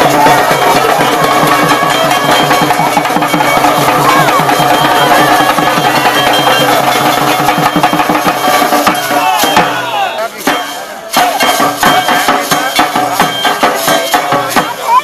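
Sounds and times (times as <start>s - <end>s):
dhol drum beaten fast: 0.0s - 15.0s.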